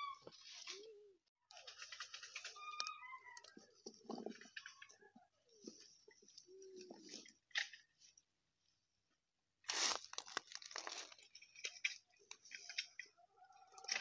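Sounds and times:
olives rattling in plastic crate: 9.8 - 12.9.

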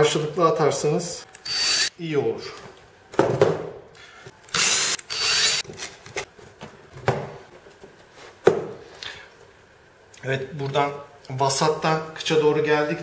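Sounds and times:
cordless drill drilling plywood: 1.4 - 1.9, 4.5 - 5.6.

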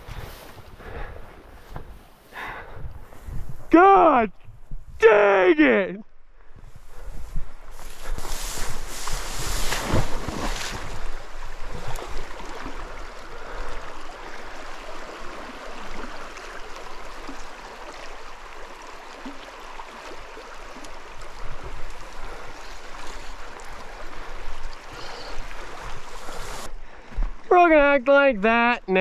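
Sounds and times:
river water rushing: 8.2 - 26.7.

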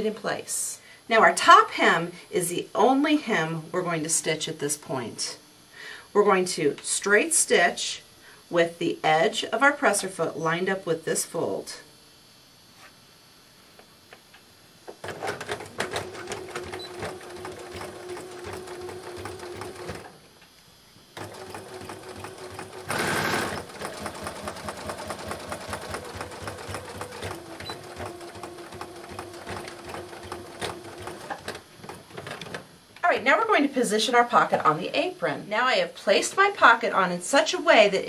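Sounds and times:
sewing machine motor humming: 15.0 - 20.2, 21.2 - 32.2.

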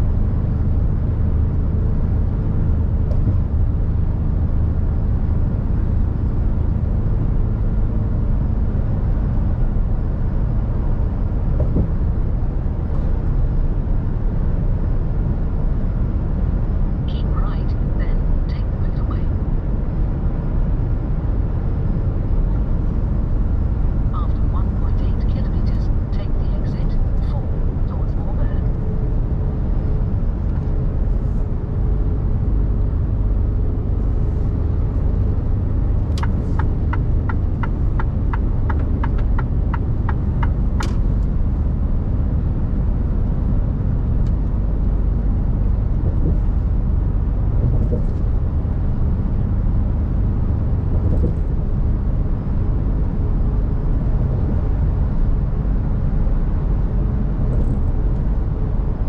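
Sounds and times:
truck engine and tyre rumble: 0.0 - 59.0
turn signal ticking: 36.0 - 41.1.

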